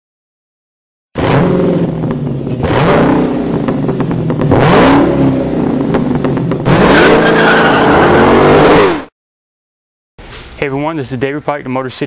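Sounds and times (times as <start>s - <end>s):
car engine revving: 1.2s - 9.1s
high squeal: 6.8s - 9.0s.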